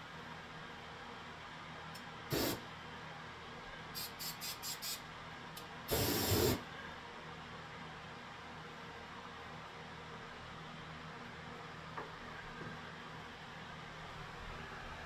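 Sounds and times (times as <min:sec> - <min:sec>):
aerosol spray can hissing: 0:02.3 - 0:02.6, 0:04.0 - 0:05.0, 0:05.9 - 0:06.6.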